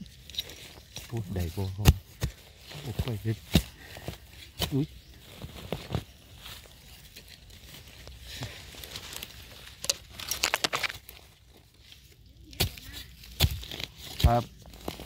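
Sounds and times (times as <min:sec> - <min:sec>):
leaf litter rustling and crackling: 0:02.5 - 0:15.0
sharp snaps and crackles: 0:06.9 - 0:15.0.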